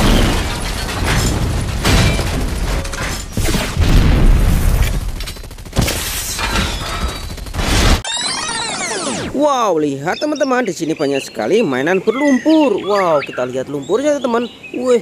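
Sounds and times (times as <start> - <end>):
heavy booms and explosions: 0.0 - 8.0.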